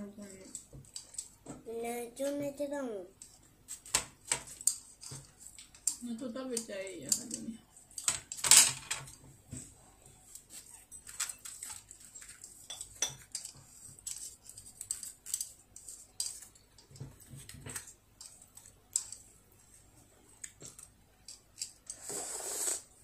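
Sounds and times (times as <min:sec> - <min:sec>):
soft mouth eating sounds: 0:21.9 - 0:23.0.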